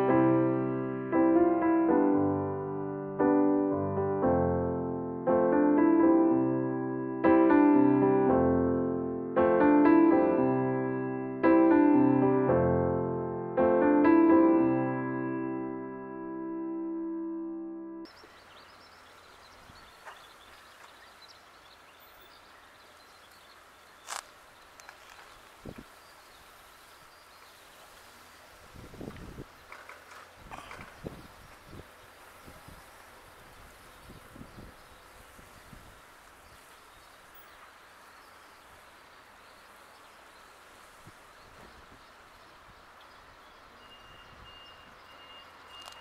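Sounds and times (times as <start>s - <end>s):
solo piano music: 0.0s - 18.1s
bird chirps: 18.1s - 28.5s, 29.4s - 46.0s
steady background hiss: 18.1s - 43.9s.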